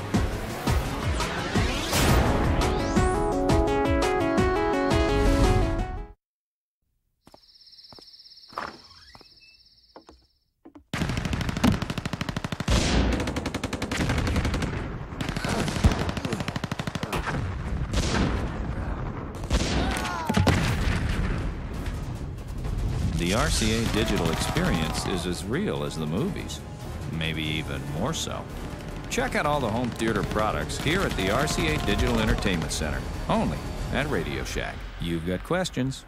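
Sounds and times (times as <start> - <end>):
rapid machine-gun fire: 11.0 - 18.6, 19.4 - 25.1, 28.5 - 33.1
explosion blasts: 17.2 - 25.0.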